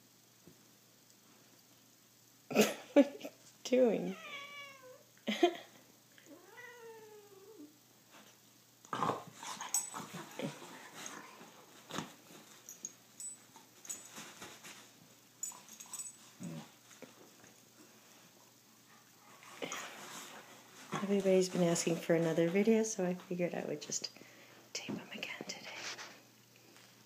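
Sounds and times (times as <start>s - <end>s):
cat meowing: 4.1s - 5.0s, 6.3s - 7.7s
animals scuffling on bedding: 13.5s - 15.1s, 16.2s - 23.4s.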